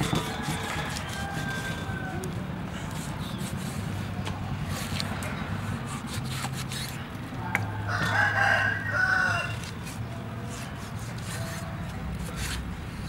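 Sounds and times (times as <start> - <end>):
rooster crowing: 0.1 - 2.3, 7.7 - 9.6.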